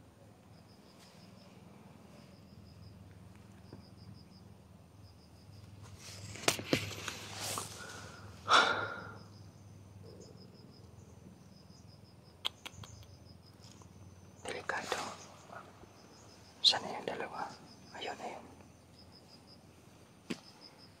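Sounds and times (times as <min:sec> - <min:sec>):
rustling close to microphone: 0:05.8 - 0:08.0
sharp clicks: 0:12.4 - 0:13.1.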